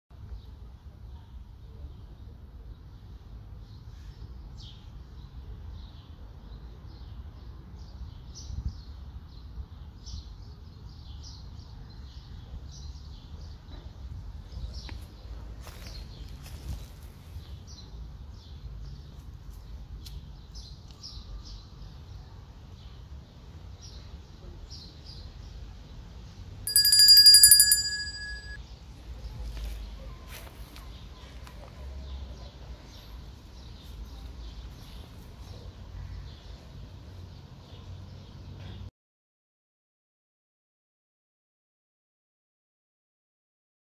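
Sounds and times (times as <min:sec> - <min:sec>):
bright bell ding: 0:26.7 - 0:28.6.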